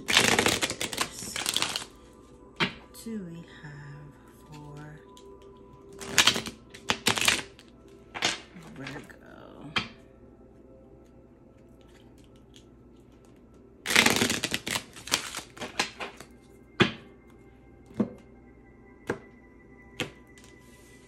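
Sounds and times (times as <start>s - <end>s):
cards being shuffled: 0.0s - 1.9s, 6.0s - 9.0s, 13.9s - 16.3s
faint background music: 0.0s - 21.0s.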